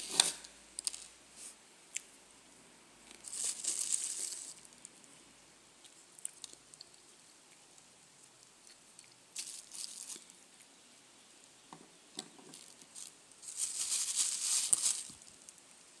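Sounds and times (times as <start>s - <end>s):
plastic bag crinkling: 3.1s - 4.8s, 9.3s - 10.4s, 12.5s - 15.6s.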